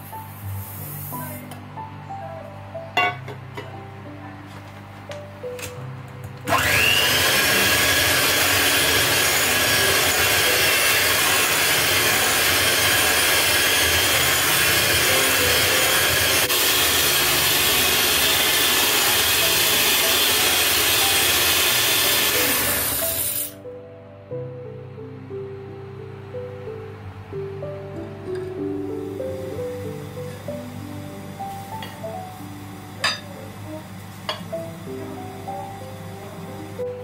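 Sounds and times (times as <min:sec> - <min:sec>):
electric hand mixer whirring: 0:06.5 - 0:23.6.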